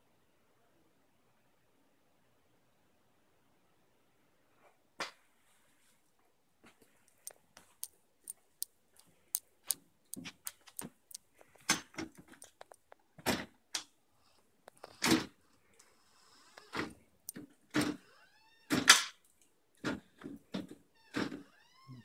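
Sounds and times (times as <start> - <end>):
dog claws clicking on tile: 7.1 - 13.0.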